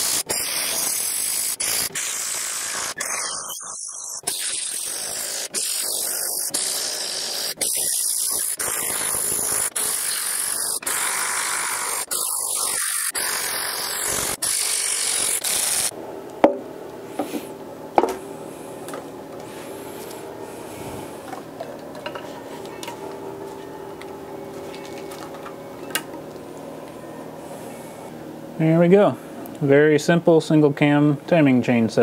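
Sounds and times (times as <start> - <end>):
electric ratchet whirring: 0.0 - 15.9
steady hum: 1.6 - 32.0.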